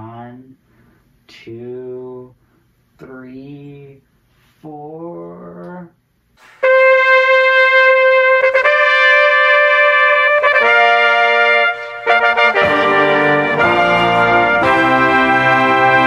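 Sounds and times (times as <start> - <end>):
trumpets playing chords: 6.4 - 16.0.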